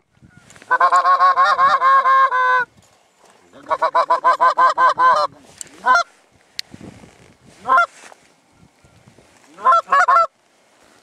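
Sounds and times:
goose honking: 0.7 - 2.7, 3.6 - 6.1, 7.6 - 8.0, 9.5 - 10.3.

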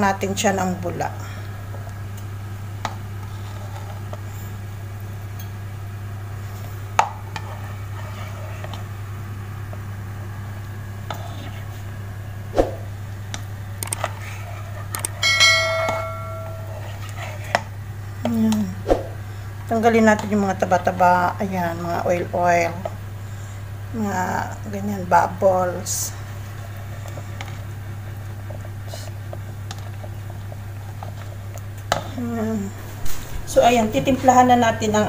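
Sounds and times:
steady low hum: 0.0 - 35.0
click and bell-like ding: 15.2 - 16.6.

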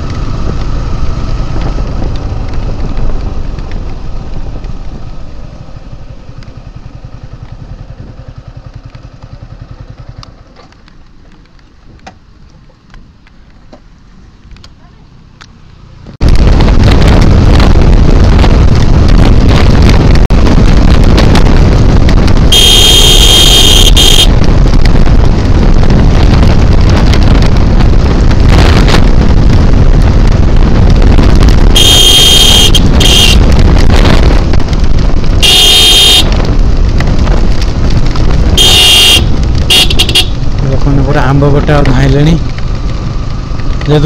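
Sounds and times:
wind rush on microphone: 0.0 - 12.1, 16.0 - 44.0
motorcycle engine: 0.0 - 44.0
motorcycle horn honking: 22.5 - 24.4, 31.8 - 33.5, 35.4 - 36.4, 38.5 - 40.4.

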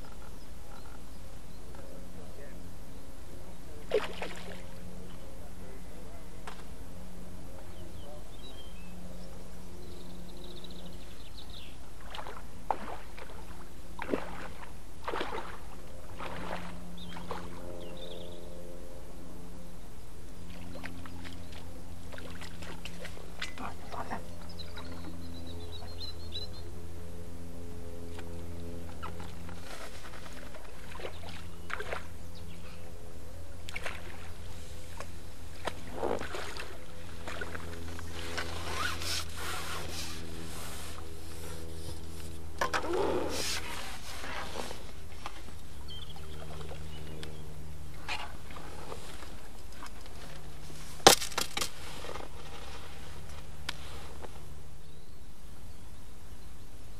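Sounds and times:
steady low hum: 0.0 - 56.9
water splashing and sloshing: 3.8 - 4.7, 12.0 - 17.6, 20.5 - 24.2, 28.9 - 32.1, 33.6 - 39.0, 46.2 - 47.3.

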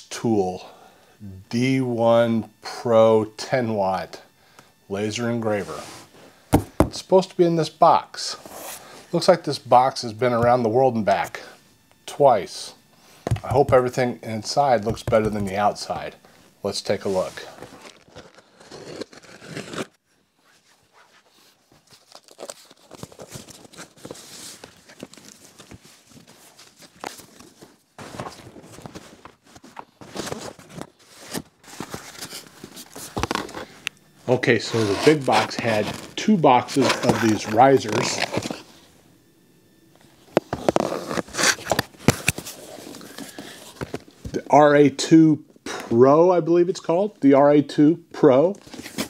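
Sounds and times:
cardboard rustling and scraping: 4.9 - 7.0, 8.3 - 9.4, 12.7 - 38.9, 40.0 - 44.4, 48.6 - 49.0
sharp knocks of boxes set down: 6.5 - 7.0
packing tape tearing: 17.5 - 20.0, 21.8 - 29.0, 29.6 - 33.8, 34.7 - 38.7, 40.3 - 44.0.

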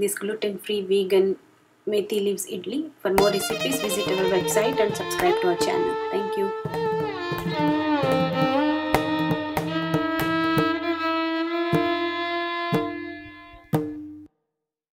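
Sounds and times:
melody with sliding notes: 3.2 - 11.3
sharp percussive strikes: 3.2 - 14.3.

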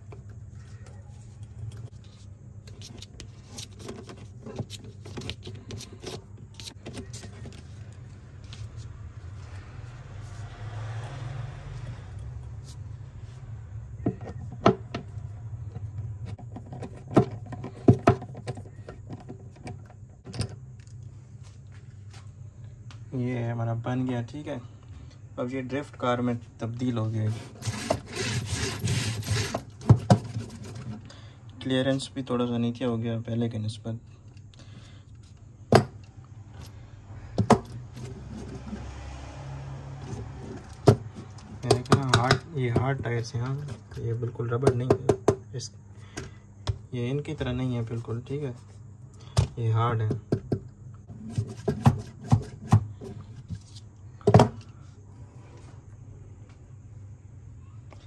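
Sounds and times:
nut driver clicking and knocking: 40.8 - 42.9.

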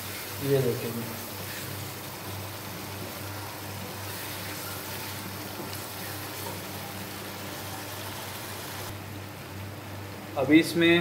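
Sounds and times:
sauce sizzling and bubbling: 0.0 - 9.0
spatula scraping wok: 4.0 - 6.7.

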